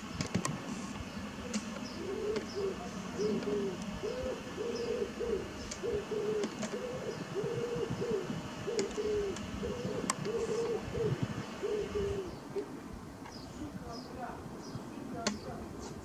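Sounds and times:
distant jet noise: 0.0s - 12.8s
pigeon cooing: 1.3s - 12.8s.

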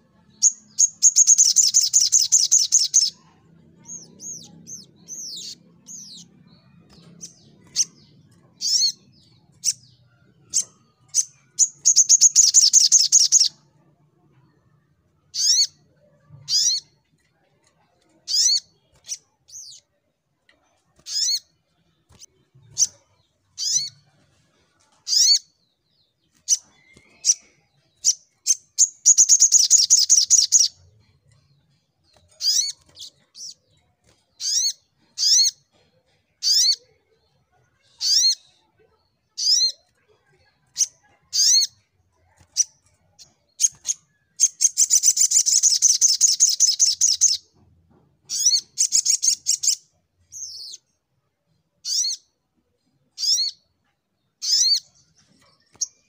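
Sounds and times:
bird sharp chirps: 0.3s - 13.6s, 15.3s - 15.8s, 26.2s - 30.8s, 42.5s - 47.5s.

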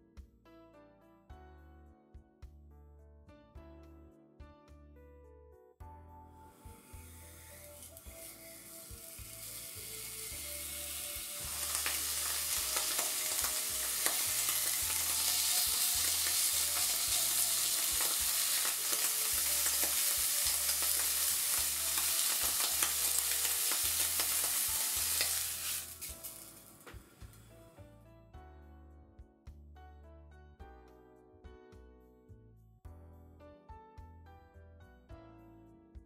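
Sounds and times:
meat sizzling in fat: 6.5s - 27.6s.

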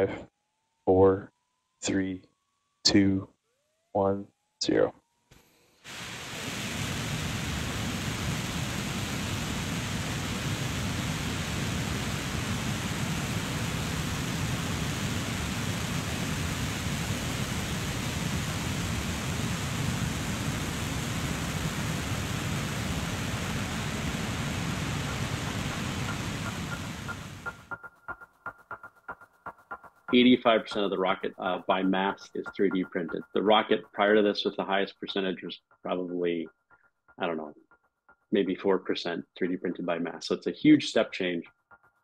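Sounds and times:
rocket engines firing: 6.1s - 27.7s.

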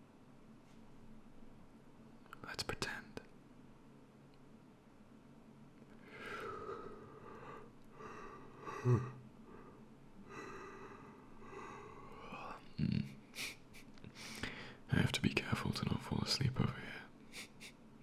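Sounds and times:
man yawning: 8.2s - 9.2s.

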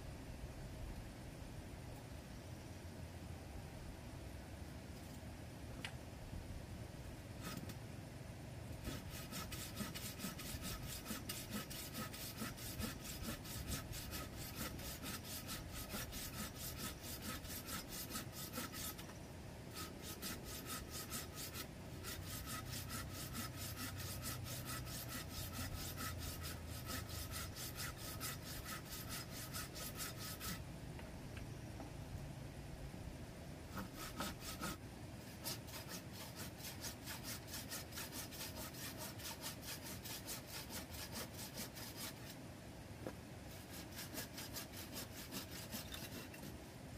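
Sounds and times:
hand saw cutting wood: 7.4s - 7.8s, 8.8s - 30.6s, 33.7s - 42.4s, 43.5s - 46.6s.

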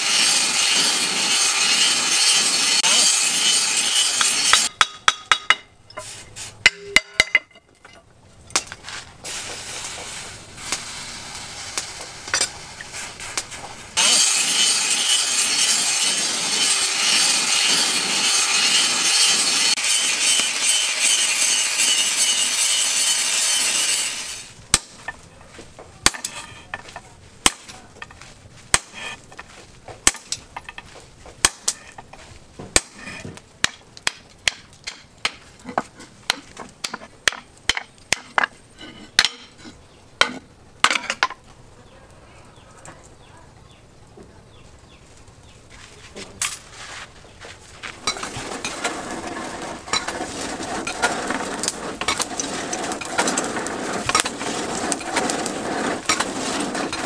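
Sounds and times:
hammer striking steel on anvil: 0.1s - 6.0s, 6.6s - 7.6s, 26.0s - 27.8s.

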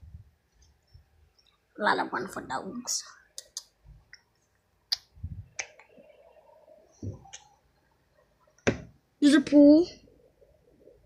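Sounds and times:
faint steady tone: 4.1s - 11.0s
dull thumps: 8.6s - 9.0s.

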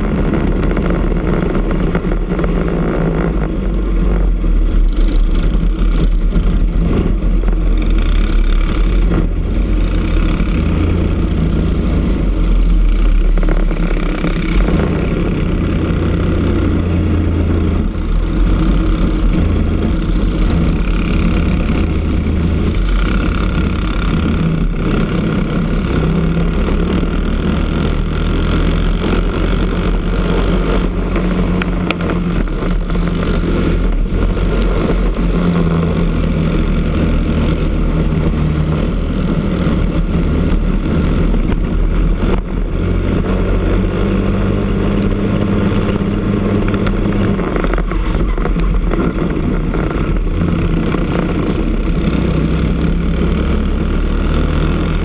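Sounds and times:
kart engines racing: 0.0s - 55.0s.

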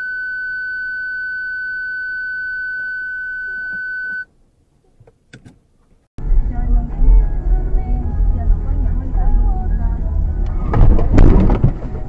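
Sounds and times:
high-pitched censor bleep: 0.0s - 4.3s.

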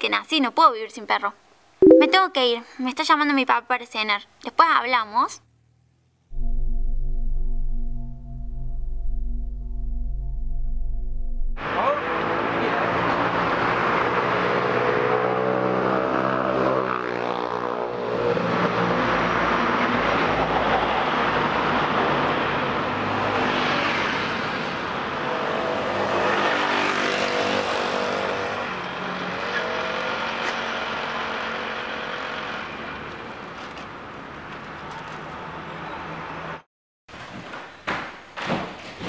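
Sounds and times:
cars driving past: 11.6s - 33.1s.

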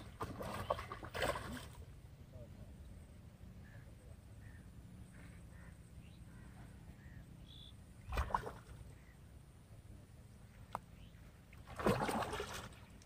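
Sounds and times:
fish splashing in water: 0.0s - 1.8s, 8.0s - 8.8s, 11.6s - 12.8s.

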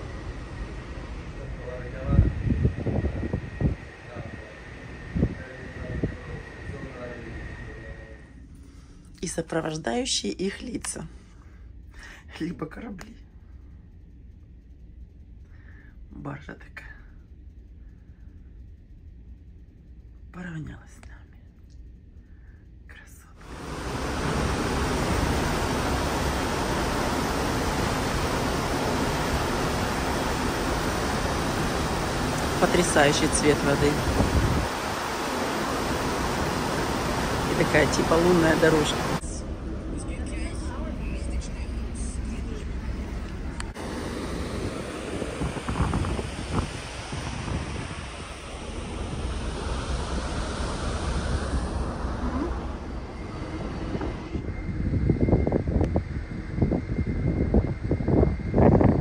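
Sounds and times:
wind on microphone: 2.0s - 7.7s, 23.4s - 39.2s, 43.4s - 59.0s
sea rushing: 23.4s - 54.4s
ship wake churning: 23.4s - 54.4s.

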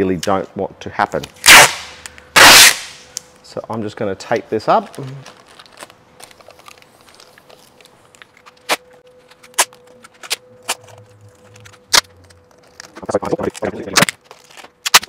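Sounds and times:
sharp tape crackles: 1.4s - 3.3s, 4.9s - 15.0s
plastic tape crinkling: 4.8s - 15.0s.

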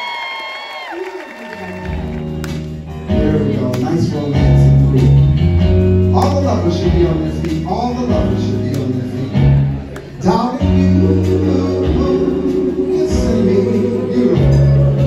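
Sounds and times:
bass: 1.5s - 15.0s
guitar: 1.8s - 15.0s
man singing into microphone: 3.1s - 5.3s, 6.1s - 9.6s, 10.2s - 15.0s.

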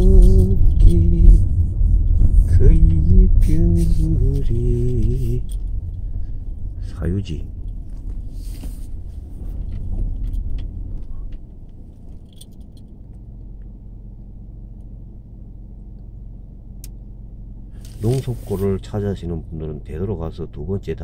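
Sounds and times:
car interior rumble: 0.0s - 21.0s
light clicks and rattles: 6.8s - 14.9s.

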